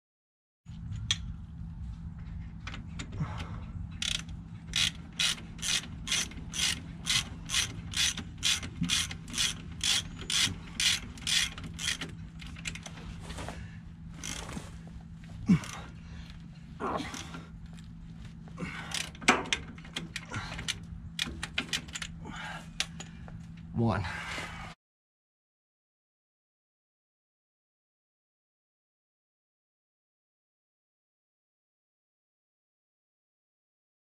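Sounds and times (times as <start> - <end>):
ratchet wrench ratcheting: 4.0 - 12.9.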